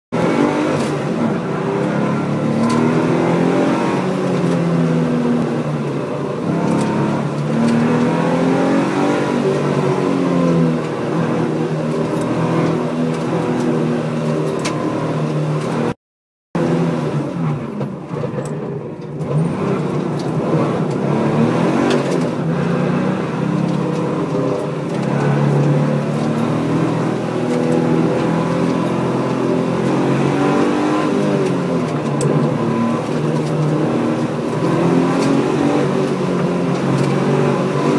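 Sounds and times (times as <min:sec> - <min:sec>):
car engine revving: 0:00.1 - 0:16.0, 0:16.6 - 0:18.1, 0:19.2 - 0:37.9.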